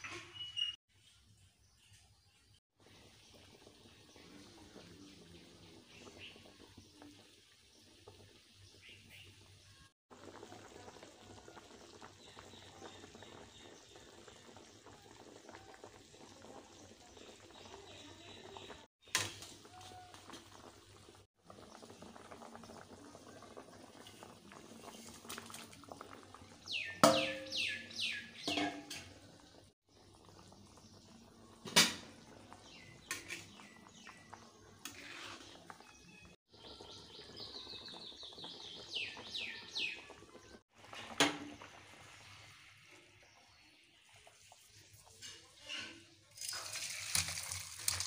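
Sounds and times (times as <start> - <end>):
bird chirping: 0.1 - 2.6, 26.6 - 28.5
curry bubbling in a wok: 0.9 - 48.0.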